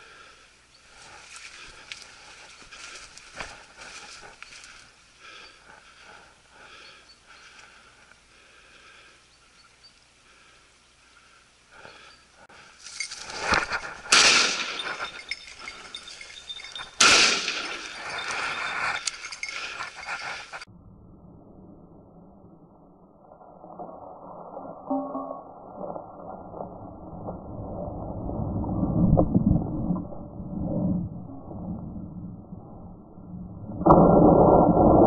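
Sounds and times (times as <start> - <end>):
shotgun shots with echo: 14.1 - 14.8, 17.0 - 17.7.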